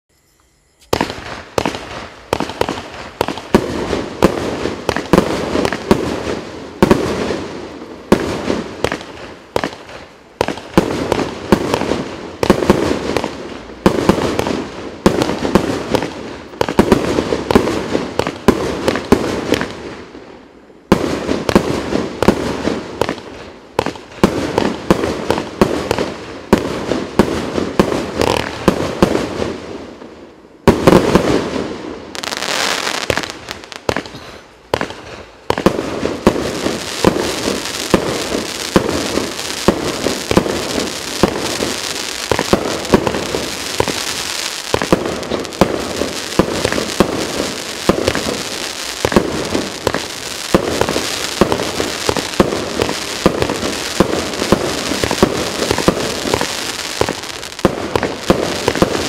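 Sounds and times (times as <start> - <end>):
crackle of bursting fireworks: 0.2 - 59.0
fireworks sharp bangs: 0.8 - 20.1, 20.8 - 59.0.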